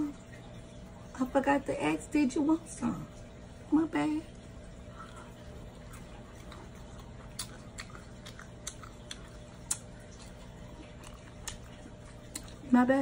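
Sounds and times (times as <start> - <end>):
person chewing with wet smacks: 4.3 - 13.0.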